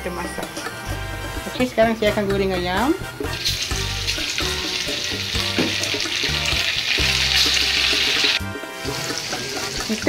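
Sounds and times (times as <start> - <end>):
chicken sizzling in hot oil: 3.0 - 10.0.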